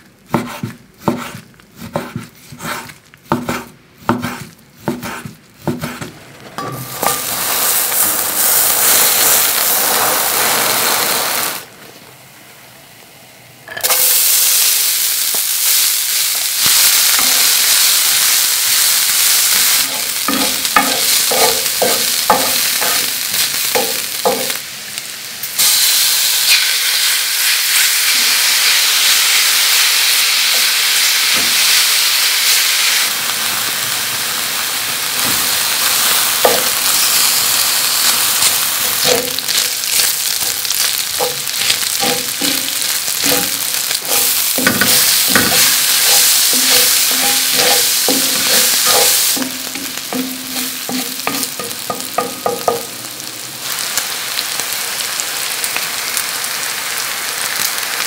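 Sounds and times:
wooden spatula scraping a pan: 0.3s - 6.1s, 20.0s - 23.1s, 38.9s - 52.8s
onions and steak sizzling in a pan: 0.3s - 58.0s.

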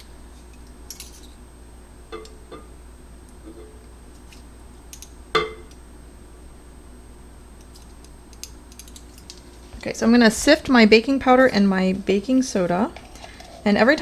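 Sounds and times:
glass bottle knock with ring: 5.4s - 5.7s.

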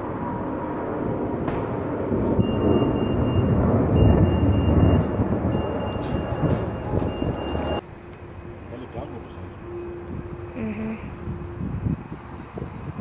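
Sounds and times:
jet engine rumble overhead: 0.0s - 13.0s.

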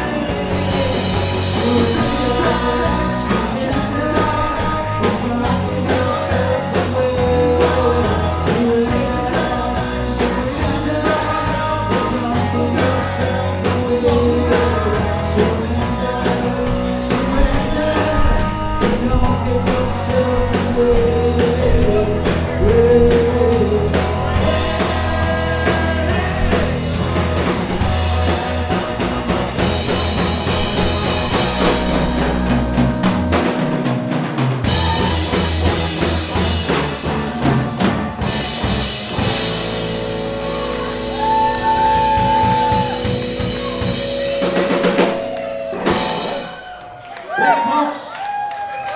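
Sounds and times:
lead vocal singing: 0.0s - 33.8s
drum kit: 0.0s - 47.0s
bass guitar: 0.0s - 47.3s
electric guitars: 0.0s - 48.9s.

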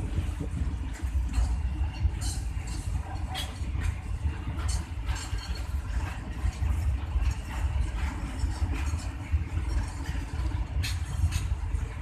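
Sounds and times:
freight train wheels rumbling: 0.0s - 12.0s
wheels clacking over rail joints: 0.0s - 12.0s.

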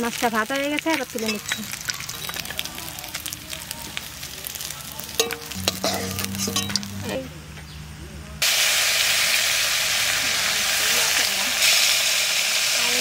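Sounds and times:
fish sizzling in hot oil: 0.0s - 7.2s, 8.4s - 13.0s
metal spatula scraping a pan: 5.2s - 7.2s.

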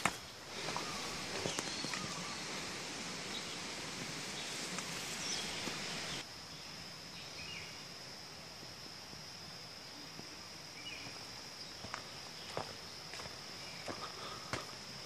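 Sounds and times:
high insect-like whine: 0.0s - 15.0s
steady hiss: 0.0s - 15.0s
faint bird chirps: 0.3s - 2.5s.

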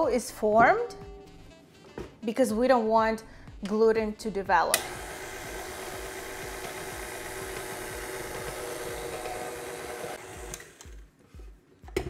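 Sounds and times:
stand mixer motor whirring: 4.8s - 11.0s.

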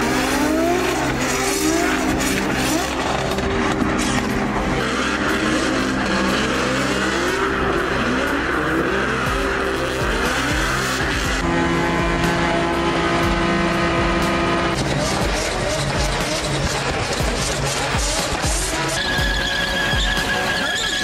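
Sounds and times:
car engine revving hard: 0.0s - 21.0s
tyre squeal: 15.7s - 21.0s.

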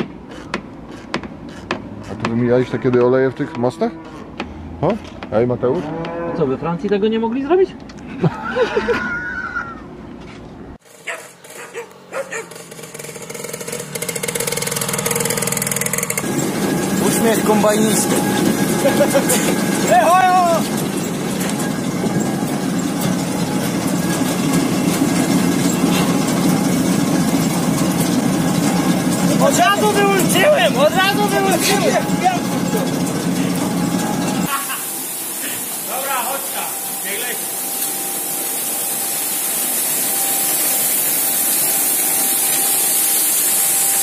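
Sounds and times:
combine harvester drone: 10.9s - 44.0s
grain pouring onto heap: 34.6s - 44.0s.

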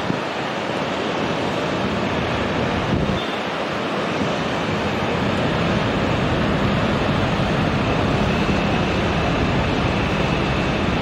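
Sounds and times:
jet engine roar: 0.0s - 11.0s
faint high whine: 3.1s - 11.0s.

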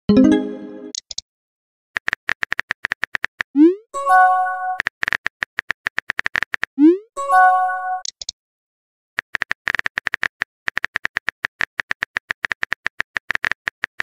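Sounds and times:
message notification chime: 0.1s - 0.9s.

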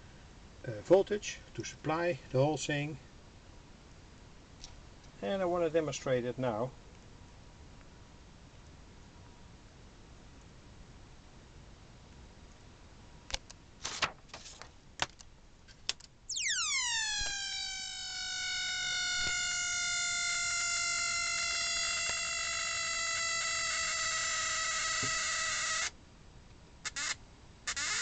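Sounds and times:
shrill electronic oscillator tone: 16.3s - 25.9s.

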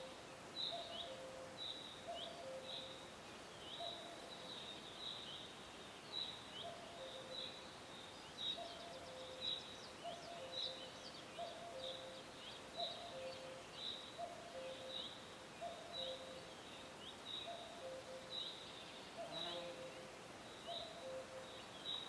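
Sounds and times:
faint ambient hiss: 0.0s - 22.0s.

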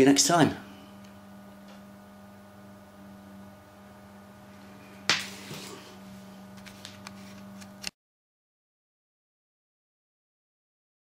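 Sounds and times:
steady low hum: 0.0s - 7.9s.

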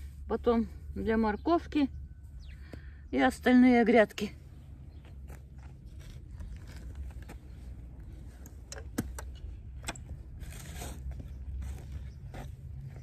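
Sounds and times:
steady low rumble: 0.0s - 13.0s
shovel blade scraping in soil: 10.2s - 12.9s.

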